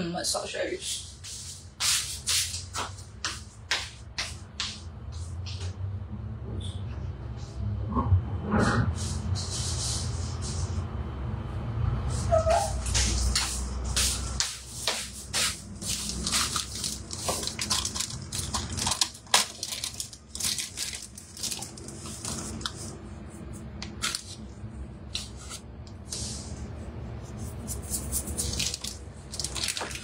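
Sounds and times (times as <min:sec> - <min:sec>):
steady low hum: 0:00.0 - 0:30.0
kitchen items clicking and tapping: 0:16.0 - 0:22.8.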